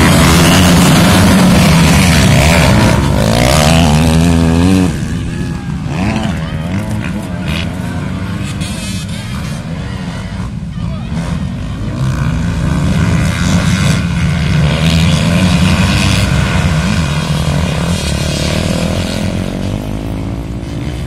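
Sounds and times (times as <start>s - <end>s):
motocross bikes passing: 0.0s - 21.0s.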